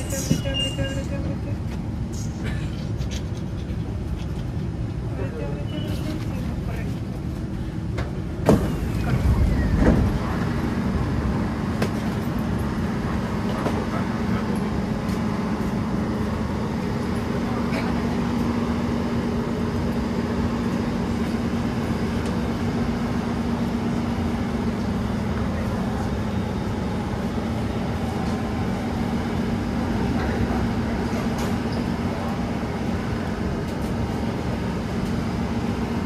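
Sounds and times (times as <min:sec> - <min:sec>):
train rumbling: 0:00.0 - 0:36.0.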